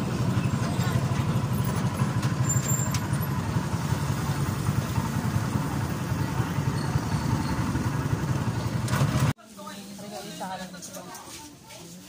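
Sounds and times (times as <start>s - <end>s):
small motorcycle engine running: 0.0s - 9.3s.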